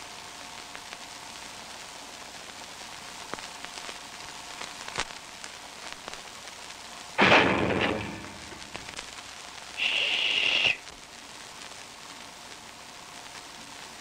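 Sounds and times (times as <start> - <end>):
old film soundtrack crackle: 0.0 - 14.0
cartoon crash: 7.2 - 8.9.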